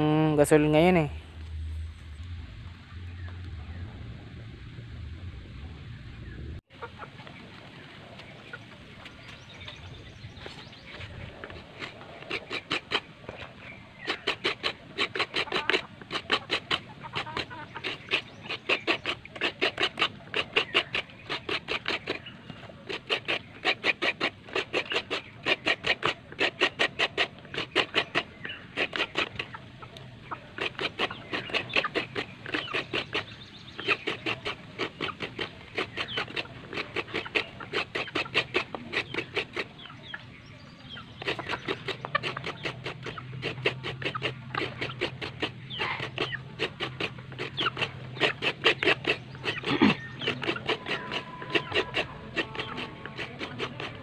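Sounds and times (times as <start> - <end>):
coconut grater rasping: 9.2 - 39.9, 41.0 - 54.0.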